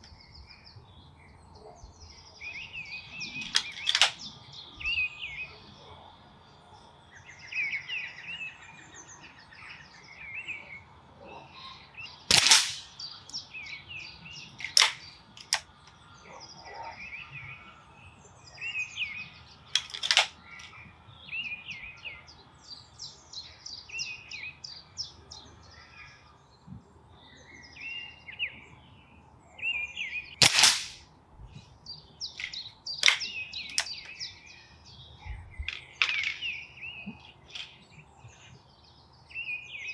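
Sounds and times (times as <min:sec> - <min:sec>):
songbirds chirping: 0:00.0 - 0:39.9
air rifle shots cracking: 0:03.4 - 0:04.3, 0:12.3 - 0:13.1, 0:14.6 - 0:15.7, 0:19.8 - 0:20.4, 0:30.4 - 0:31.0, 0:32.4 - 0:34.0.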